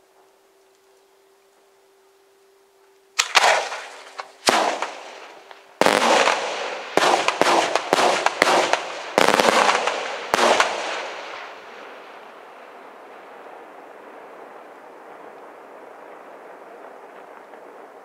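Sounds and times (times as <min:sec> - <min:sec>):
fireworks shells bursting: 0:03.2 - 0:11.6
rolling echo of bangs: 0:03.2 - 0:12.1.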